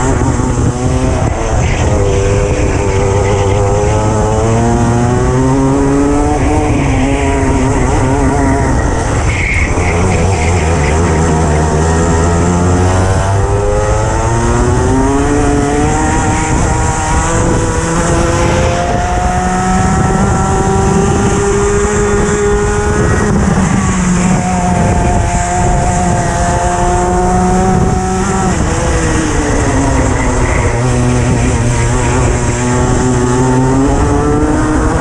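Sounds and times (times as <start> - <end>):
kart engine at full throttle: 0.0 - 35.0.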